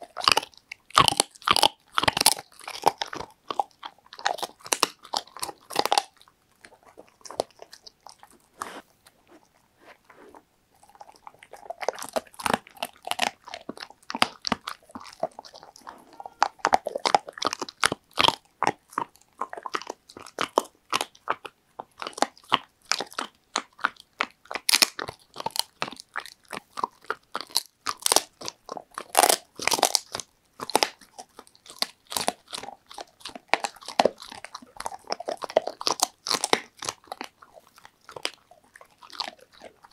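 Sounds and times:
dog crunching a chew: 0.0s - 39.9s
dog breathing: 8.4s - 10.9s.

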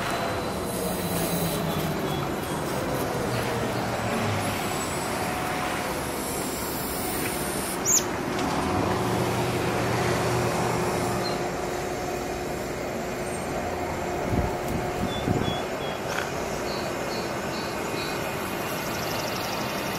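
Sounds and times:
motor traffic rumble: 0.0s - 19.9s.

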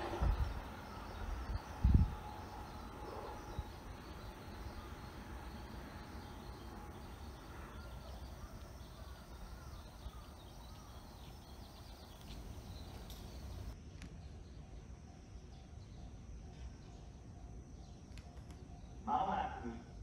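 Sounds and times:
steady low rumble: 0.0s - 13.8s
faint bird chirps: 0.0s - 20.0s.

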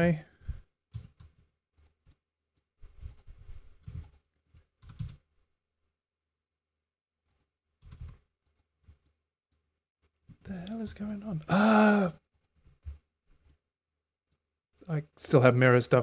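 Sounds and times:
computer keyboard keystrokes: 3.0s - 4.2s, 4.8s - 5.2s.

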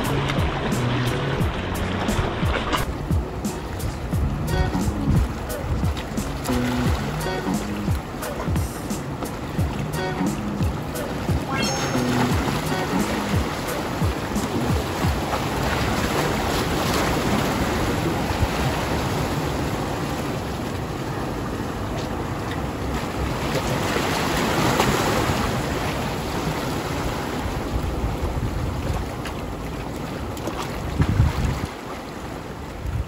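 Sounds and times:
surf washing against rocks: 0.0s - 33.0s
wind buffeting microphone: 5.0s - 6.2s, 25.7s - 31.8s.

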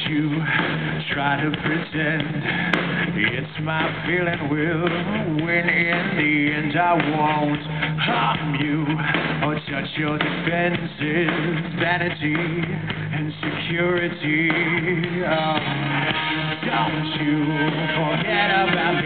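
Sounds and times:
electric guitars: 0.0s - 19.0s
live rock band playing: 0.0s - 19.0s
man singing long notes: 3.2s - 19.0s.

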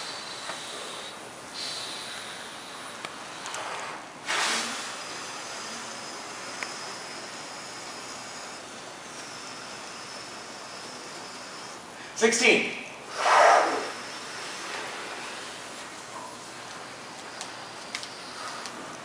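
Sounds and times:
people breathing through mouths: 17.2s - 19.0s.

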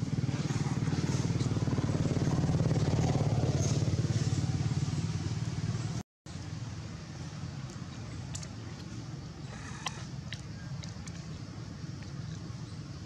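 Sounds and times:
small engine running: 0.0s - 6.0s.

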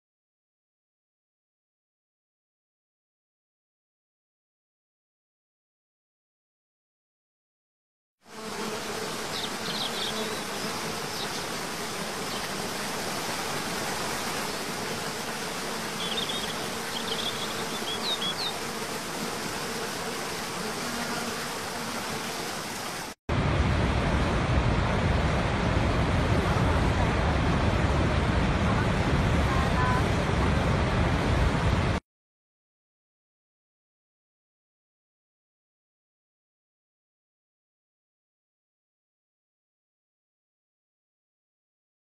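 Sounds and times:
deep rush of large waterfall: 22.6s - 32.0s.

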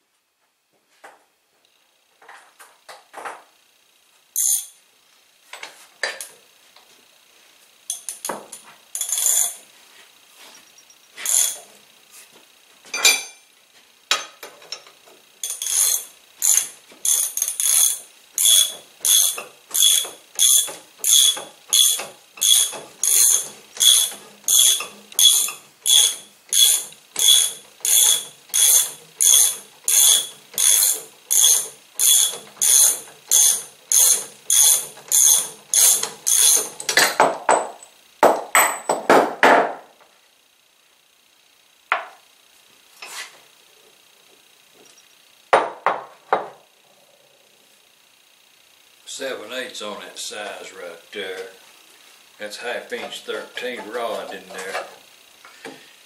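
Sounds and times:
ratchet wrench clicking: 4.4s - 4.8s, 7.9s - 9.6s, 11.2s - 11.6s, 14.7s - 37.0s
metal tools clanking: 7.9s - 9.6s, 11.2s - 11.7s, 12.9s - 13.5s, 14.1s - 37.9s, 52.9s - 55.0s.

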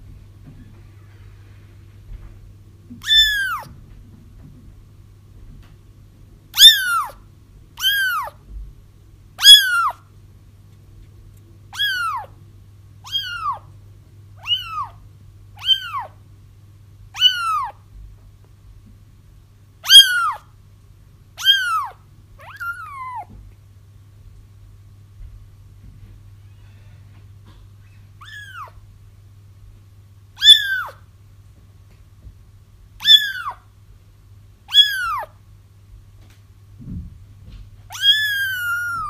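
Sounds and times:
faint low hum: 0.0s - 39.0s
kittens mewing: 3.0s - 3.8s, 6.6s - 7.2s, 7.8s - 8.4s, 9.4s - 10.0s, 11.7s - 12.4s, 13.0s - 13.7s, 14.4s - 15.0s, 15.6s - 16.2s, 17.1s - 17.8s, 19.8s - 20.5s, 21.4s - 23.4s, 27.8s - 28.8s, 30.4s - 31.0s, 33.0s - 33.6s, 34.7s - 35.4s, 37.9s - 39.0s.

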